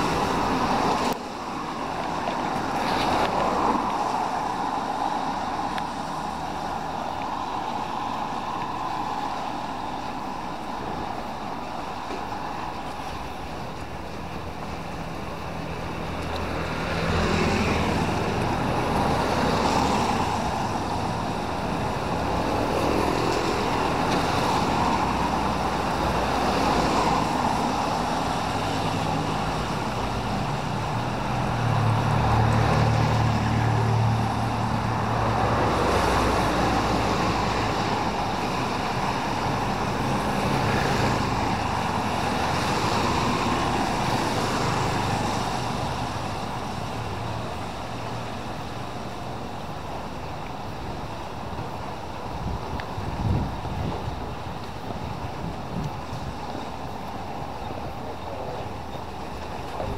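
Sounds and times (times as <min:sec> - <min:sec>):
tyres hissing on wet asphalt: 0:00.0 - 0:59.9
motorbike engines passing: 0:12.7 - 0:59.9.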